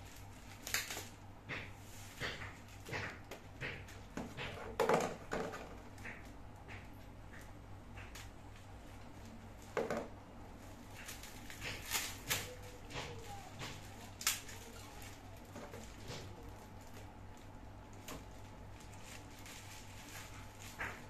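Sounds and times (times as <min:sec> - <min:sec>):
plastic sleeve crinkling: 0:10.5 - 0:21.0.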